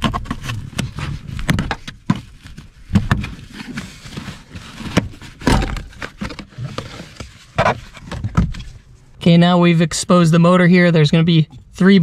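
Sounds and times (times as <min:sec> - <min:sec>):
handling rustle: 0:00.0 - 0:09.1.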